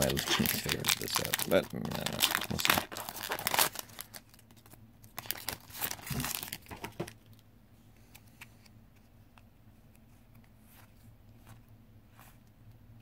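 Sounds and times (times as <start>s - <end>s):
foil wrapper crinkling and tearing: 0.0s - 7.1s
faint clicks of cards handled: 7.4s - 12.8s.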